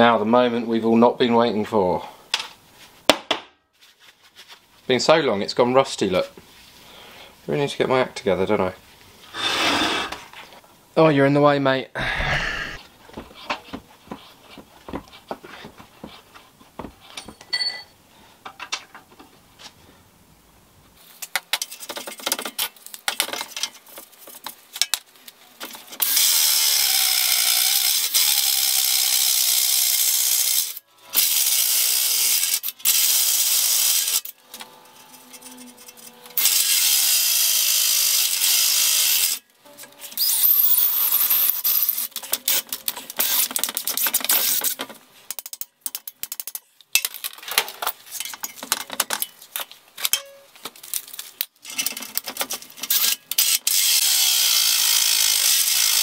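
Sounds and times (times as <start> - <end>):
tools clicking and rattling: 41.9 - 53.7
power drill cutting steel: 53.7 - 56.0.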